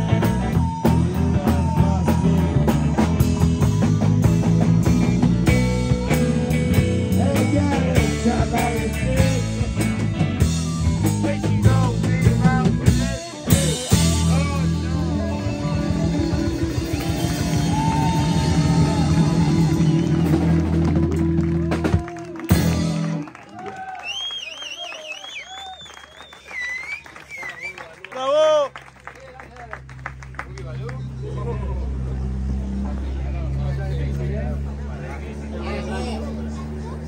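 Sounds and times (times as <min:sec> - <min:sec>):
man singing: 0:00.0 - 0:03.2, 0:06.1 - 0:16.9
rock band playing: 0:00.0 - 0:23.4.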